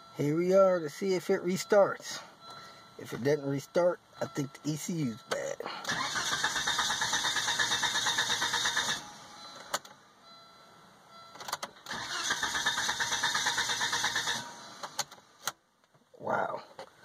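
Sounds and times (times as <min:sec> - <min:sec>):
car starter cranking engine: 0:05.4 - 0:09.9, 0:11.4 - 0:15.6.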